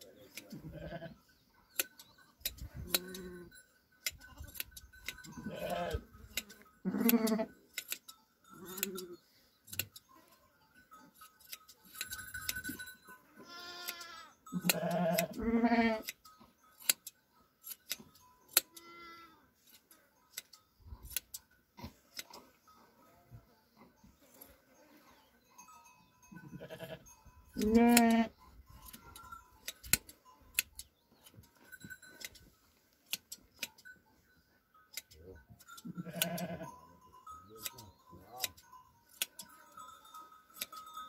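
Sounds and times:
sheep bleating: 0.5 - 1.2, 5.3 - 6.1, 6.8 - 7.5, 13.4 - 16.1, 18.7 - 19.4, 26.4 - 28.4, 35.8 - 36.7
hand shears snipping fleece: 6.3 - 8.1, 8.7 - 9.1, 16.0 - 16.2, 16.8 - 18.9, 19.6 - 22.5, 33.0 - 33.8, 38.4 - 39.5.

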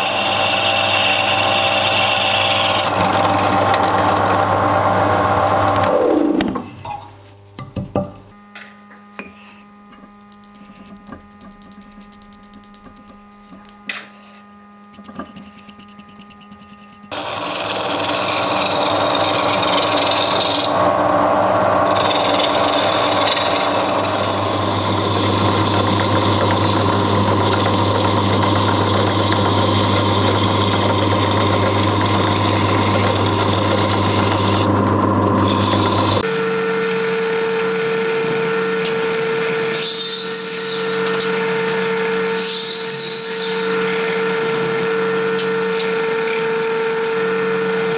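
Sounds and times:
drill press motor hum: 0.0 - 6.7, 8.4 - 39.7.

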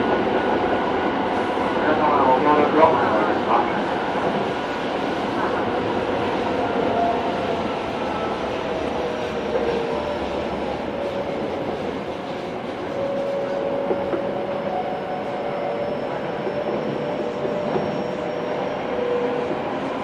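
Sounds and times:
train rolling noise: 0.0 - 20.0.

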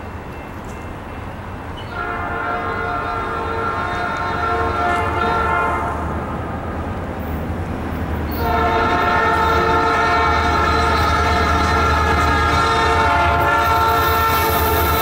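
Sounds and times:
low train rumble: 0.0 - 15.0
locomotive air horn: 1.9 - 6.1, 8.3 - 15.0.

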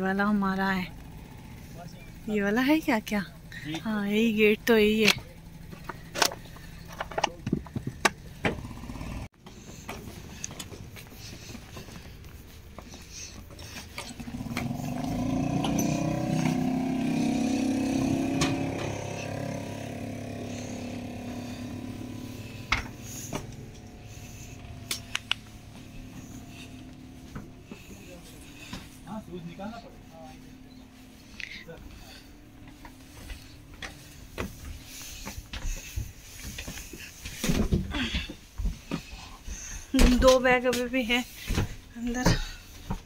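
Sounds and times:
motor engine: 0.0 - 43.0
footsteps on wooden steps: 9.4 - 17.1, 20.7 - 29.3, 29.9 - 43.0.

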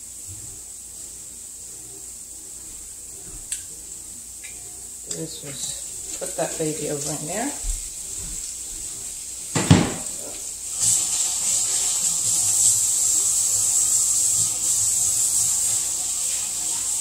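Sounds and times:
fish frying in a pan: 4.4 - 17.0
sharp knock: 9.6 - 10.1.

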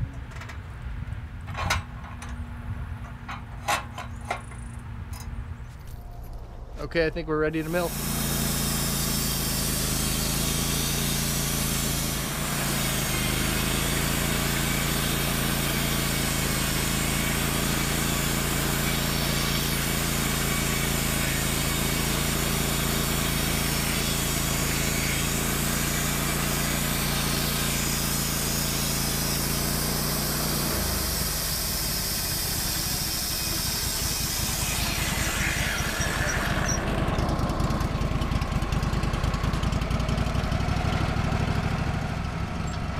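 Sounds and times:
sawmill engine running: 5.7 - 42.9
band blade sawing log: 7.5 - 38.6.

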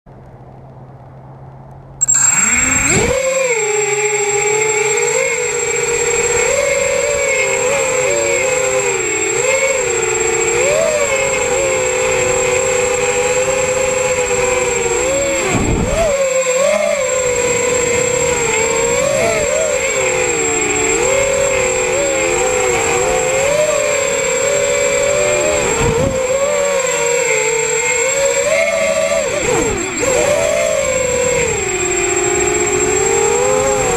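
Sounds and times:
high-pitched tone: 2.0 - 33.9
quadcopter motors whining: 2.0 - 33.9.

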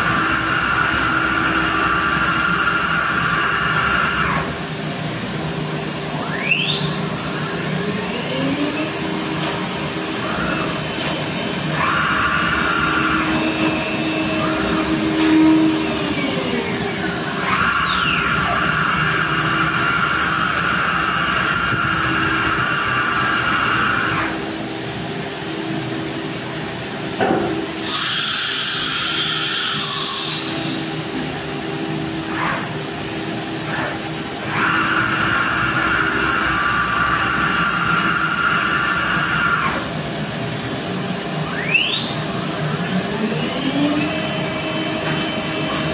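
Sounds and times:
router spindle whining: 0.0 - 24.5, 27.8 - 45.9
electric drill motors running: 0.0 - 24.6, 27.8 - 45.9
machine hum: 0.0 - 28.1, 29.8 - 45.9
air hiss: 27.7 - 30.9.

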